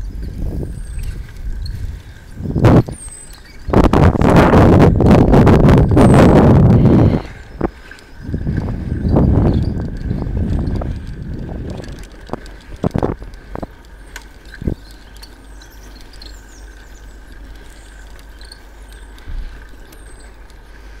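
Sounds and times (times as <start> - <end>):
bird chirps: 0.0 - 3.8, 14.0 - 20.4
camera handling rumble: 0.3 - 20.7.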